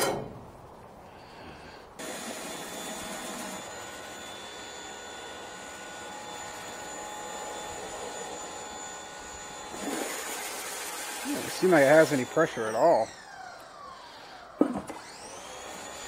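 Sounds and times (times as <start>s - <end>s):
faint steady whine: 0.0s - 16.0s
pressure washer spraying concrete: 9.7s - 13.0s.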